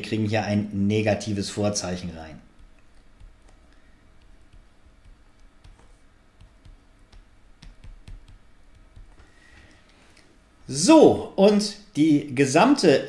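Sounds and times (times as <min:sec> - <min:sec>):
stylus tapping on tablet screen: 0:02.4 - 0:09.7.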